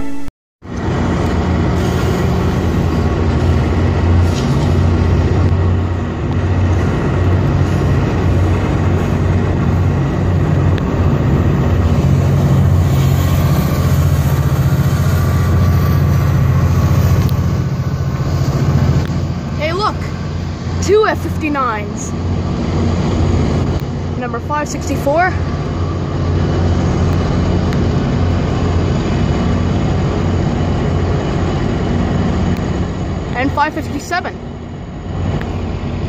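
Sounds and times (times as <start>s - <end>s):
diesel engine drone: 0.0s - 36.0s
train passing: 0.0s - 36.0s.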